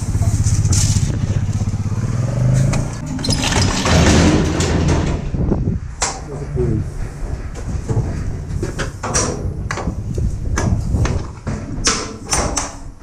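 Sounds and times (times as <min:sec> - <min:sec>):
vehicle engine running: 0:00.0 - 0:04.7
loud rough noise: 0:00.0 - 0:12.3.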